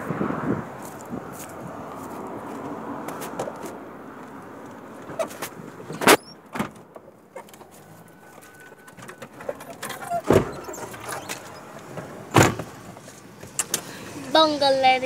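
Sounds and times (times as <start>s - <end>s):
car door shutting: 5.0s - 7.7s, 8.3s - 13.9s
knocks and thumps in a car: 9.0s - 12.8s.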